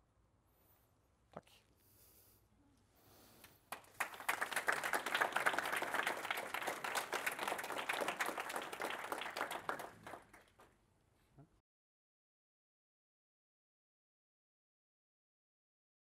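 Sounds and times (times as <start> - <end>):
audience applauding: 3.7 - 10.7.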